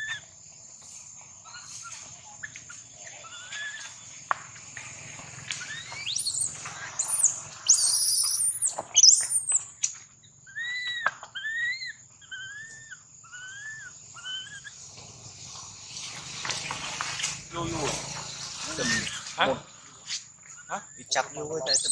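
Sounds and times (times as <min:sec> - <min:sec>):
baby monkey crying calls: 0:00.0 - 0:00.3, 0:01.4 - 0:04.1, 0:05.6 - 0:09.7, 0:10.4 - 0:14.8, 0:21.6 - 0:21.9
monkeys screeching: 0:00.0 - 0:00.3, 0:01.4 - 0:04.1, 0:05.5 - 0:14.8, 0:17.5 - 0:21.9.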